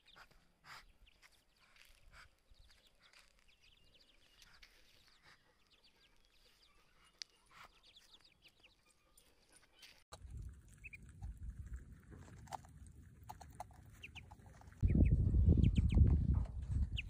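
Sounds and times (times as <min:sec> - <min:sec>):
ducklings peeping: 0:00.0 - 0:08.9, 0:10.7 - 0:11.3, 0:13.2 - 0:16.1.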